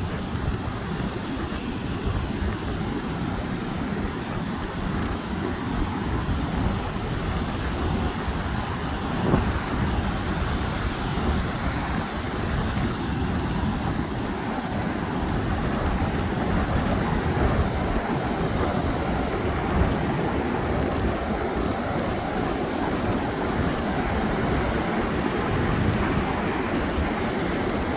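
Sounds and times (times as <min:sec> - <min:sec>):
ocean surf breaking: 0:00.0 - 0:27.9
wind buffeting microphone: 0:00.0 - 0:27.9.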